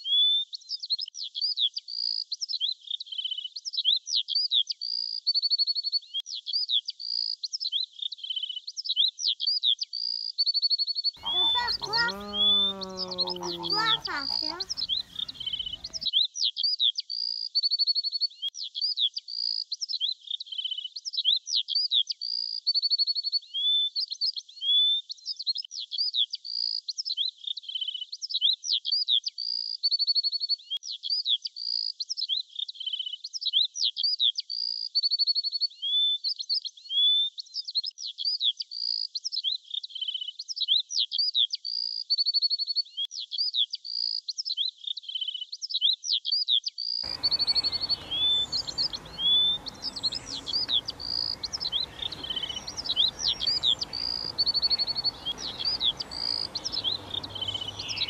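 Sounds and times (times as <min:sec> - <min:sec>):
bird chirps and trills: 0:11.2 - 0:16.1, 0:47.1 - 0:58.0.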